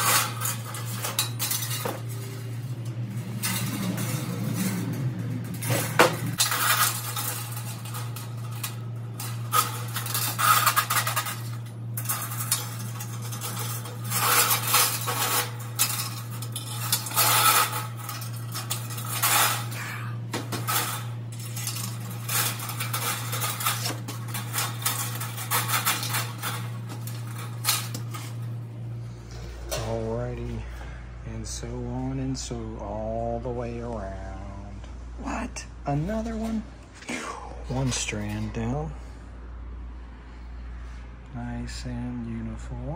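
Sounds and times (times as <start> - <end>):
metal wire clinking and rattling: 0.0 - 28.7
low hum: 0.0 - 42.6.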